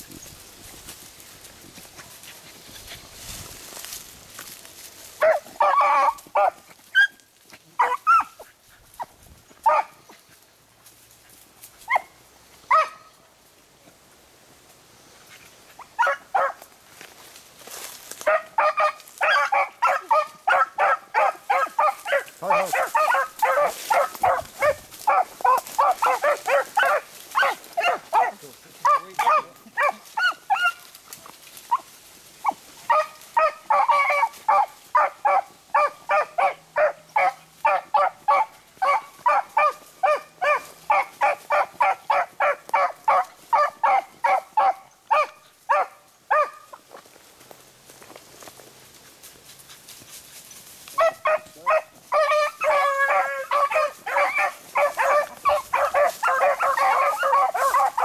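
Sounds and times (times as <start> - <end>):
hounds baying: 5.2 - 10.4, 11.9 - 13.2, 15.4 - 16.6, 18.2 - 31.0, 31.7 - 46.8, 50.9 - 58.0.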